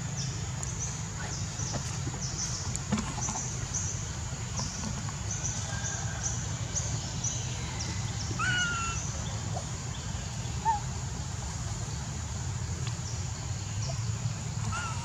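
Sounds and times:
whistled calls: 7.7 - 9.4.

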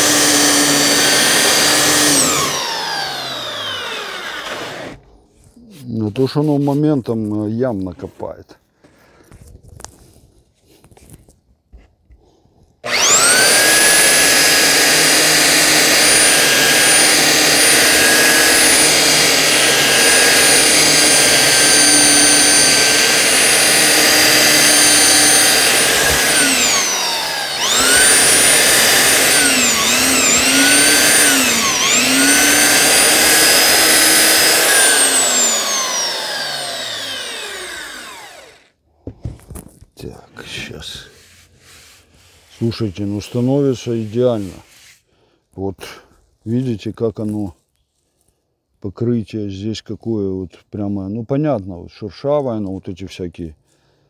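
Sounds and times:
belt sander motor whine: 0.0 - 5.0, 12.8 - 38.7.

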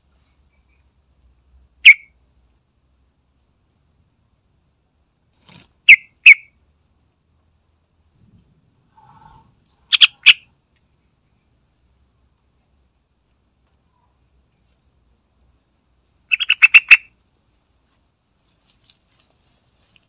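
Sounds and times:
bird calling sharp notes: 1.8 - 2.1, 9.0 - 10.5, 16.3 - 17.1.

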